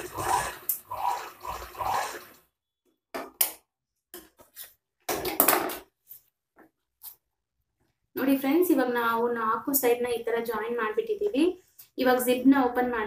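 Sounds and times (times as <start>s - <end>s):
sewing machine stitching: 0.0s - 2.4s.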